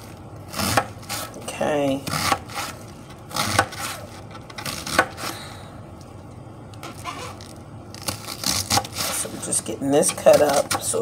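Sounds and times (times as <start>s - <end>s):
knife cutting cabbage on board: 0.5s - 5.3s, 8.0s - 11.0s.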